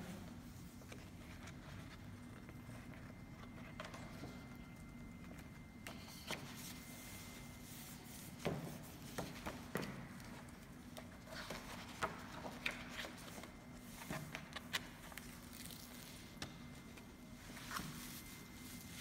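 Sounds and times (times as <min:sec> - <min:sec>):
paper pages rustling: 0:08.8 - 0:19.0.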